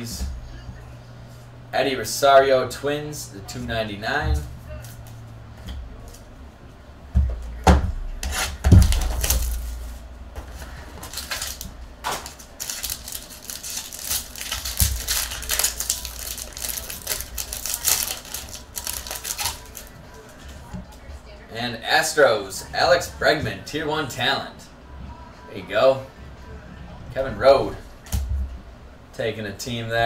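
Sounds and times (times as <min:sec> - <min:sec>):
plastic wrapper crinkling and tearing: 0:11.0 - 0:20.3.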